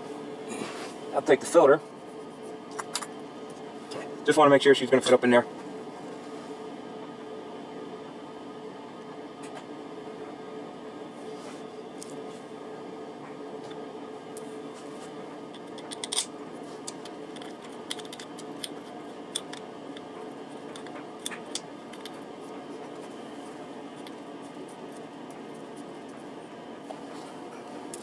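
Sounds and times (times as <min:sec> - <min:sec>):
steady background hum: 0:00.0 - 0:28.0
small metallic clicks and scrapes: 0:15.5 - 0:20.1.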